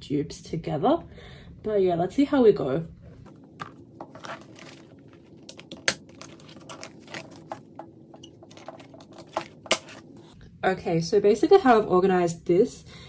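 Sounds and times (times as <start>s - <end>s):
plastic sleeves crinkling: 3.2s - 10.4s.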